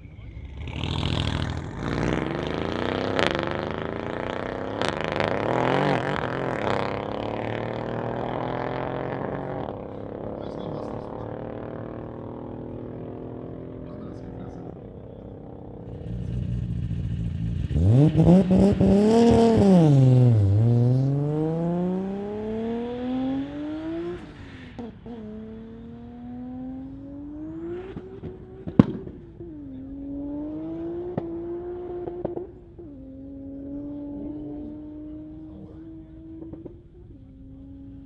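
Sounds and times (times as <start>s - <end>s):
car engine accelerating: 0.0s - 38.0s.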